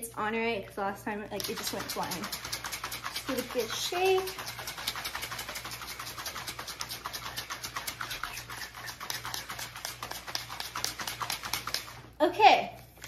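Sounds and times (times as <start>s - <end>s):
liquid sloshing in shaker bottle: 1.4s - 12.2s.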